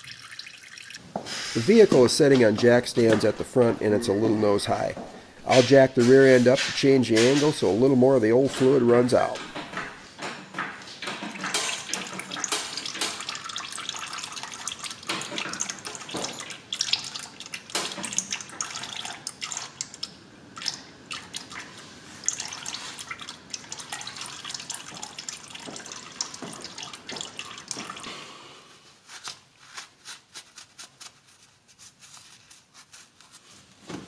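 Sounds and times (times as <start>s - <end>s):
fluid dripping into a pan: 0.0s - 1.0s, 11.1s - 28.1s.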